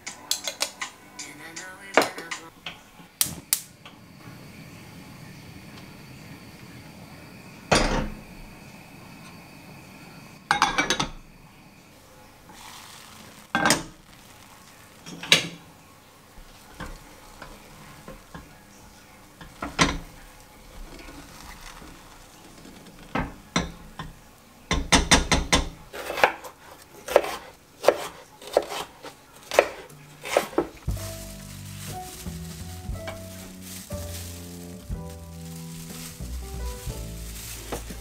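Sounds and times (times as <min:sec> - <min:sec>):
knife slicing on wooden board: 0:27.1 - 0:28.9, 0:29.5 - 0:30.7.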